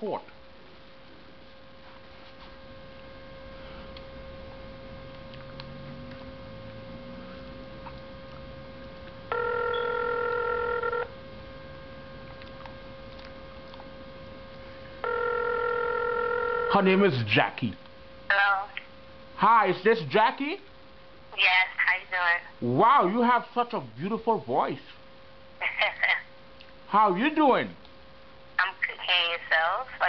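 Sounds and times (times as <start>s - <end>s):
faint steady hum: 0.0s - 30.0s
telephone ringback tone: 9.3s - 11.1s, 15.0s - 16.8s.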